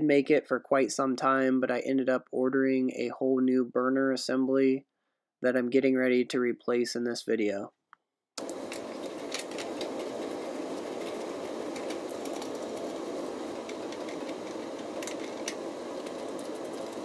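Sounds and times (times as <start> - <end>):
steady mechanical hum: 8.4 - 17.0.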